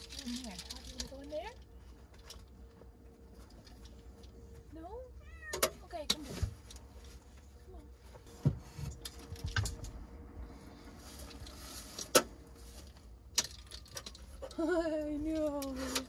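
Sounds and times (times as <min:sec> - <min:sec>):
small hard items clicking: 0:00.0 - 0:02.5, 0:12.8 - 0:16.0
faint steady hum: 0:00.0 - 0:16.0.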